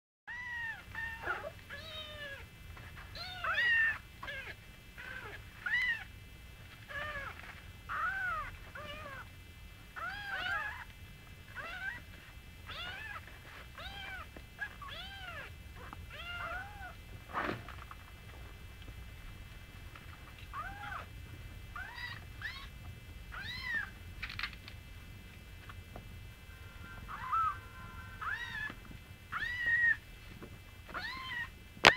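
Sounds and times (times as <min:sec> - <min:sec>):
kittens mewing: 0:20.5 - 0:21.1, 0:21.8 - 0:22.7, 0:26.7 - 0:30.0.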